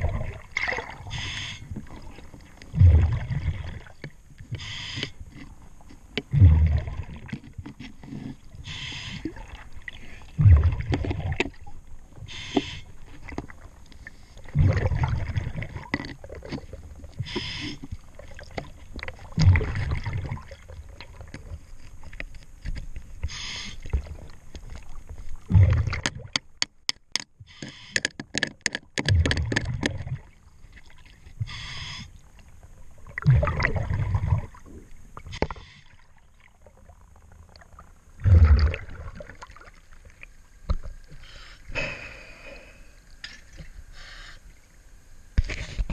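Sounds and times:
rumbling bubbles: 0.0s - 4.0s, 6.3s - 7.4s, 9.2s - 11.8s, 14.5s - 17.3s, 17.9s - 21.6s, 23.9s - 26.3s, 29.0s - 31.5s, 32.4s - 40.8s
diver breathing through regulator: 1.1s - 1.7s, 4.6s - 5.2s, 8.0s - 9.3s, 12.3s - 12.9s, 17.2s - 17.9s, 23.2s - 23.9s, 31.4s - 32.2s, 41.1s - 43.0s, 43.9s - 44.5s.

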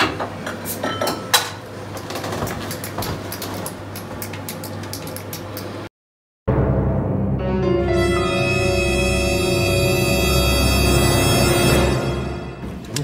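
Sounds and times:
glassware clinking: 0.8s - 1.5s.

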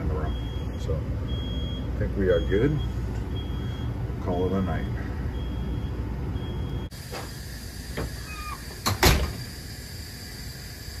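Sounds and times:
gas monitor high beeps: 0.0s - 7.0s.

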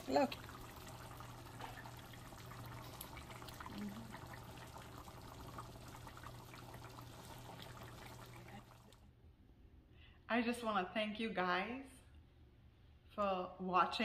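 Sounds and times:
curry bubbling in a pan: 0.0s - 9.0s.

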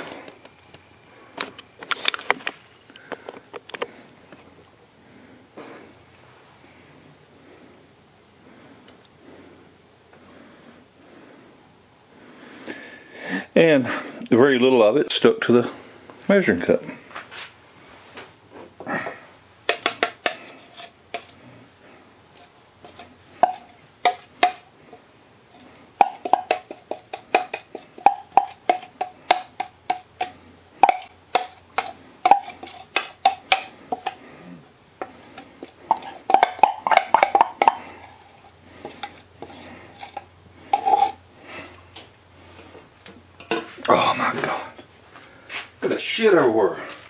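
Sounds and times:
utensil scraping metal pot: 19.7s - 21.5s, 22.8s - 34.4s, 35.0s - 41.2s.

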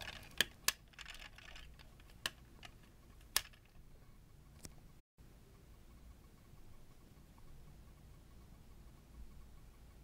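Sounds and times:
sharp plastic clicks: 0.0s - 3.8s.

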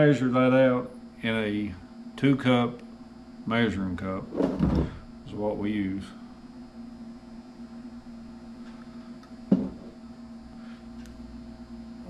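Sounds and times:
electrical mains hum: 0.0s - 12.0s
brief knock: 9.5s - 9.8s.

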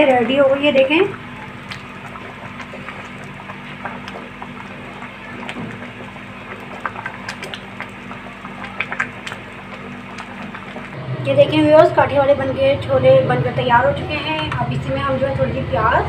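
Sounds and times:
soup simmering with bubbling pops: 0.0s - 11.0s
steady low hum: 0.0s - 16.0s.

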